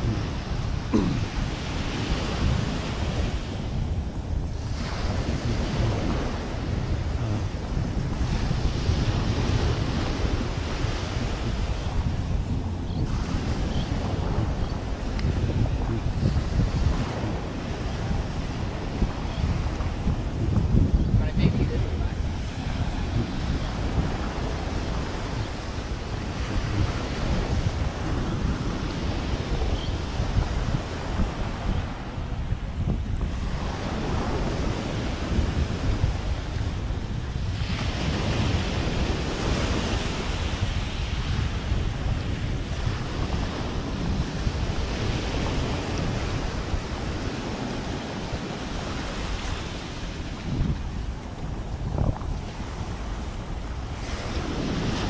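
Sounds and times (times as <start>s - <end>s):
surf washing on beach: 0.0s - 55.0s
wind buffeting microphone: 0.0s - 55.0s.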